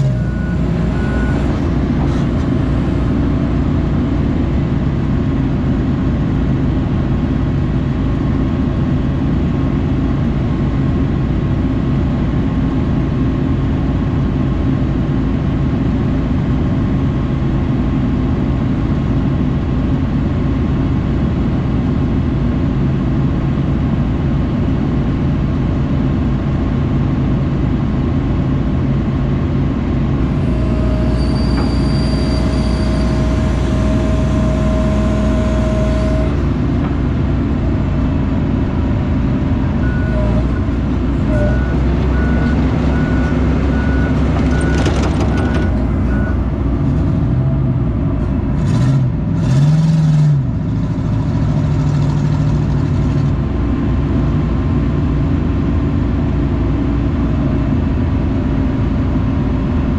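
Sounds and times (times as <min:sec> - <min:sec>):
higher whine: 0:00.0 - 0:04.8, 0:30.1 - 0:48.6
excavator diesel engine humming: 0:00.0 - 0:59.9.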